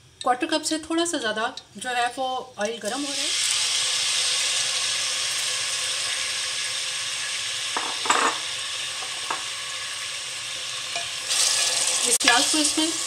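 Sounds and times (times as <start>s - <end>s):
onion sizzling in hot oil: 2.6s - 13.0s
knocks on pot: 7.8s - 8.4s.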